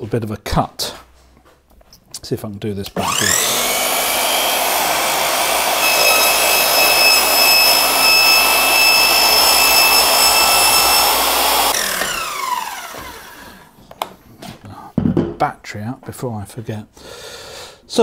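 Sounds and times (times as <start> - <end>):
mitre saw whining: 3.0 - 13.6
saw motor winding down: 3.0 - 13.6.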